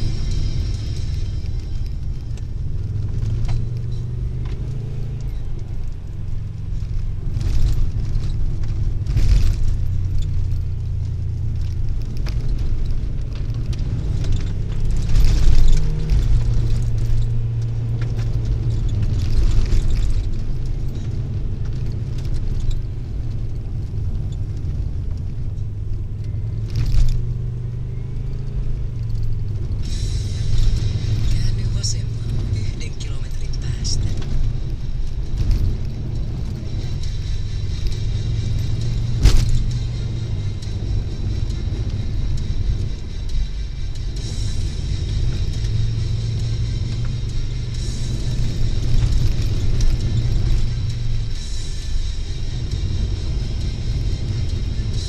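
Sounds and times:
car engine drone: 0.0 - 55.0
tyres rushing on gravel: 29.1 - 47.1.

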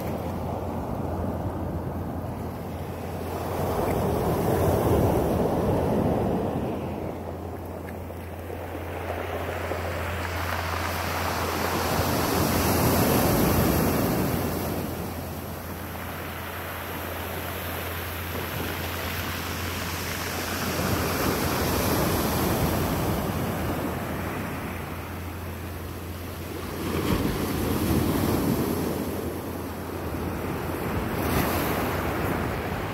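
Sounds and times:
surf washing up a cobble beach: 0.0 - 32.9.

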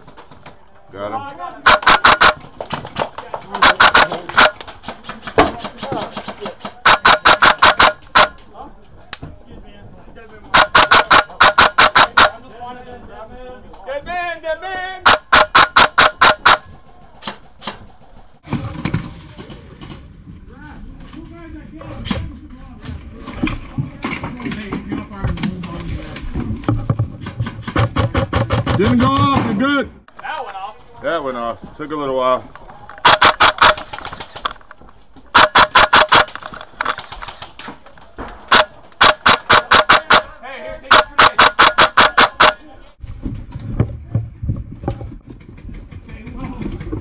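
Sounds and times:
airsoft gun shots: 1.7 - 2.5, 3.6 - 4.6, 6.8 - 8.4, 10.6 - 12.4, 15.1 - 17.8, 33.0 - 34.6, 35.3 - 37.5, 38.5 - 42.6.

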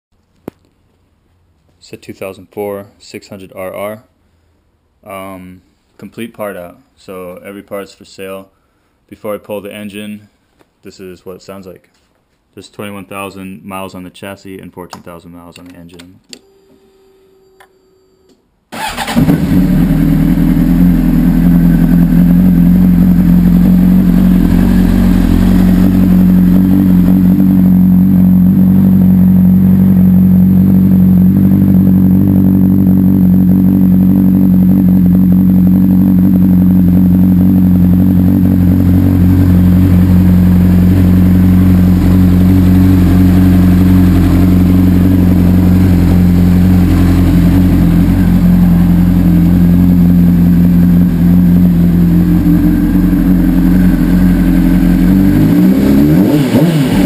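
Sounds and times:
motorcycle engine idling: 18.8 - 55.9.

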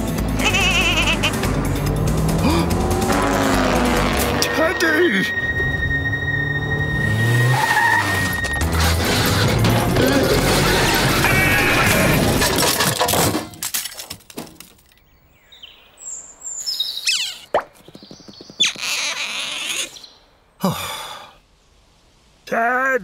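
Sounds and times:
chase music: 0.0 - 11.4
cartoon car noise: 0.4 - 1.6, 7.3 - 12.4.

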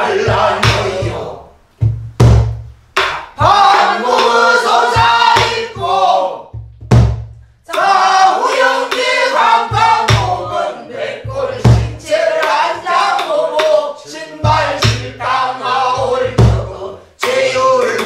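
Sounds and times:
barrel drum strokes: 0.0 - 1.2, 1.8 - 7.9, 8.9 - 10.6, 11.2 - 12.2.

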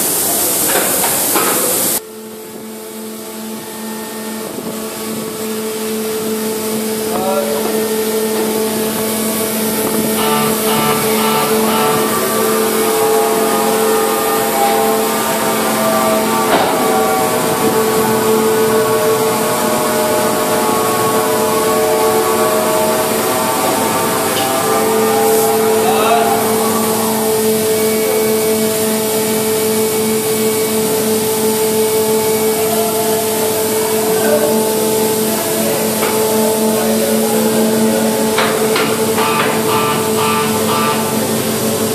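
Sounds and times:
constant hiss: 0.0 - 39.2
machinery humming drone: 0.0 - 41.9
short pulses: 7.8 - 29.9.

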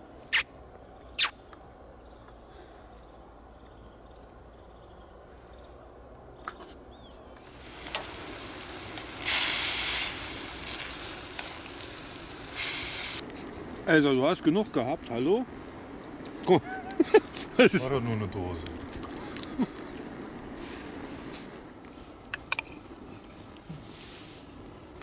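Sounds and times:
meat and onions sizzling in a pan: 7.4 - 13.2.

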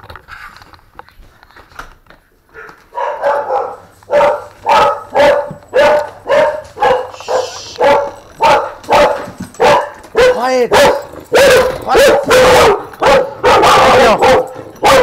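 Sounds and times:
dog barking: 2.5 - 15.0
whispered shh: 7.1 - 7.8.

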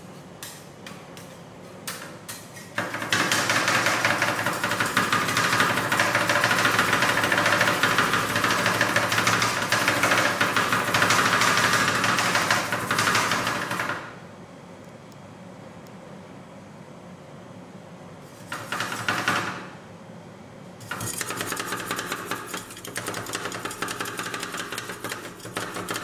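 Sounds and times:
metal spatulas chopping on steel: 20.8 - 26.0.

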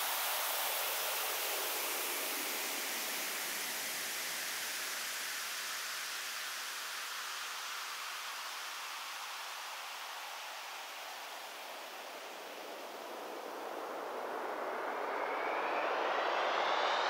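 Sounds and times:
white noise hiss: 0.0 - 15.3.

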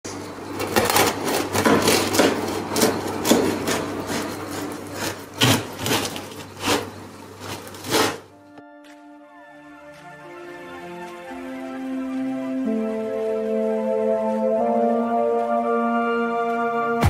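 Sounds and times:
knife sawing through crisp crust: 0.6 - 8.3.

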